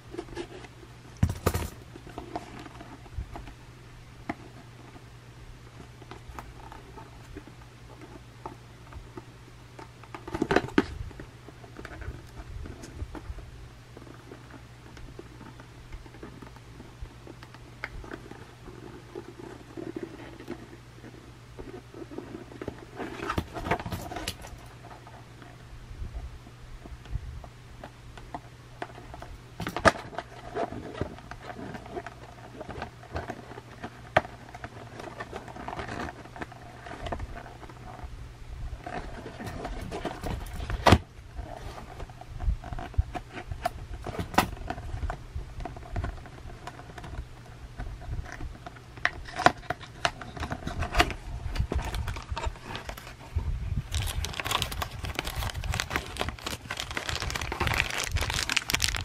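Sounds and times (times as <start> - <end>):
plastic packaging crinkling: 50.3 - 53.2, 53.8 - 59.0.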